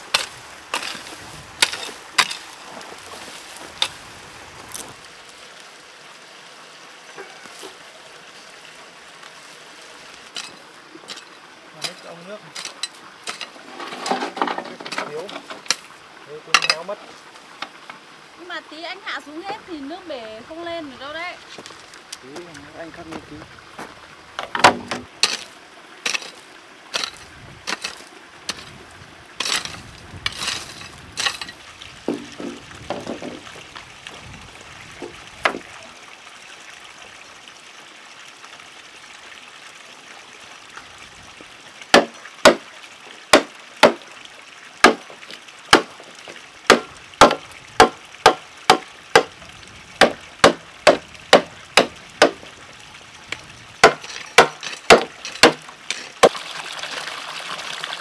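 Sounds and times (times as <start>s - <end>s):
blade chopping bamboo: 26.0s - 28.7s, 41.9s - 42.7s, 43.3s - 44.0s, 44.8s - 45.1s, 45.7s - 46.0s, 46.7s - 49.3s, 50.0s - 52.4s, 53.8s - 56.4s
knocks of pole handled: 32.1s - 33.4s.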